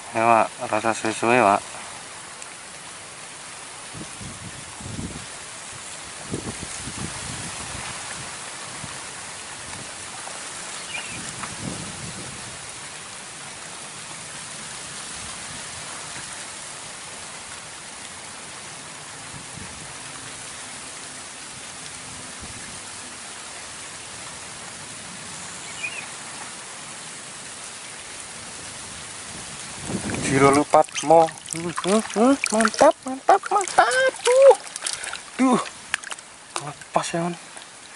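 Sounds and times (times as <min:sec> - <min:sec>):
steady outdoor hiss: 0:00.0 - 0:37.9.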